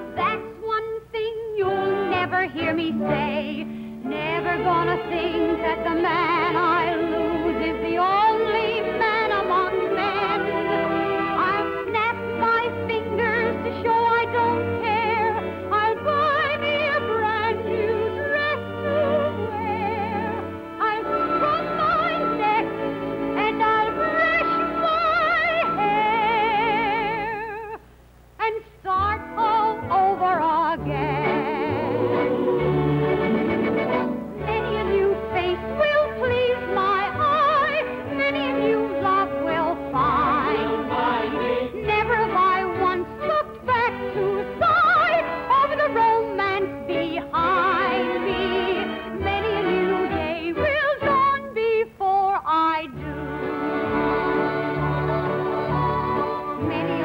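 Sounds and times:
instrumental accompaniment: 0.0 - 27.8, 29.0 - 51.9, 52.8 - 57.0
woman singing with vibrato: 0.0 - 57.0
pit orchestra playing: 17.7 - 26.4, 30.8 - 43.1.

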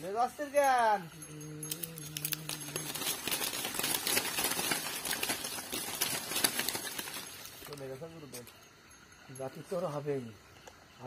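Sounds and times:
rapid crackling and rustling: 1.6 - 8.6.

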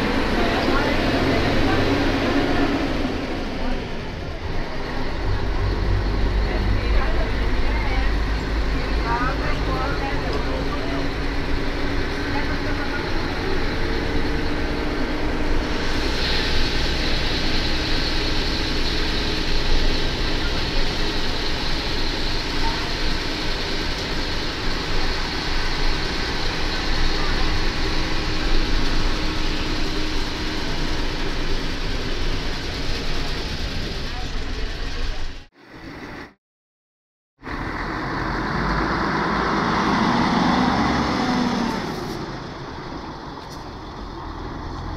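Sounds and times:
diesel engine rumbling: 0.0 - 36.3, 37.4 - 44.9
high hiss: 15.6 - 31.4.

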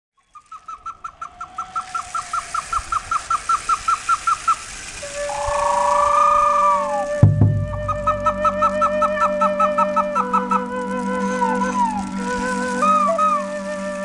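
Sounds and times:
bird calling short hooked notes: 5.0 - 13.4
sustained music tones: 5.0 - 14.0.

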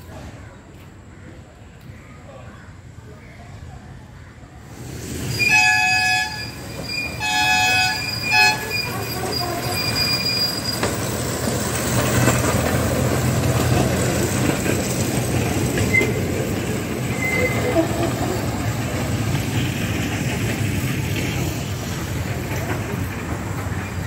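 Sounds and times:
wheels on track: 4.7 - 24.0
toy train horn: 5.4 - 9.9.

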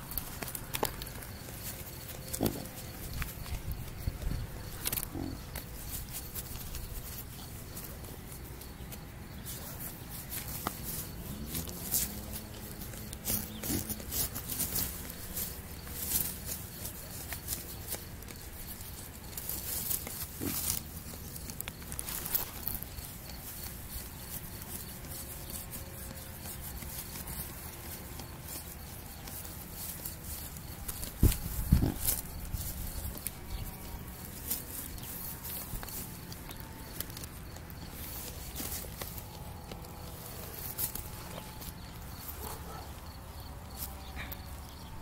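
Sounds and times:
low drawn-out animal sound: 4.3 - 5.7.

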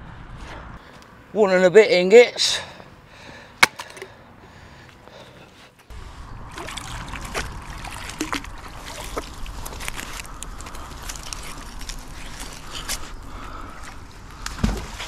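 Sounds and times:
low rumble: 0.0 - 0.8, 5.9 - 15.0
water splashes and drips: 6.4 - 12.8.

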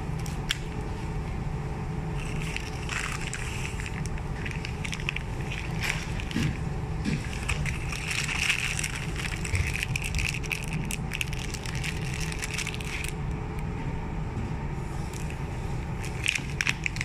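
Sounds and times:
steady low rumble: 0.0 - 17.0
snack wrappers crinkling: 2.2 - 13.2, 16.0 - 17.0.

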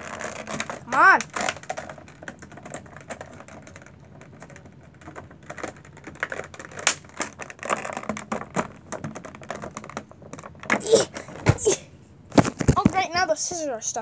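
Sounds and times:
scissors cutting plastic packaging: 0.0 - 3.8
plastic rustling: 0.0 - 13.3.

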